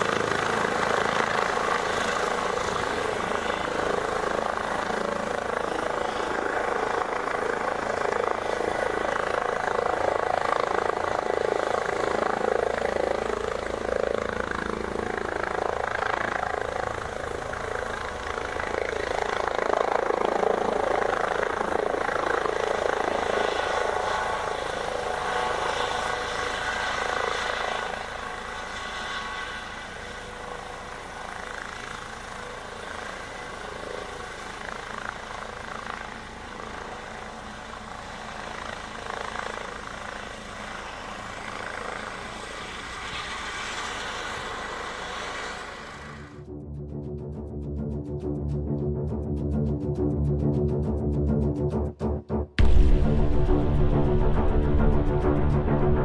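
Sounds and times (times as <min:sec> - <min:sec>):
helicopter rotor and turbine: 0:00.0 - 0:56.0.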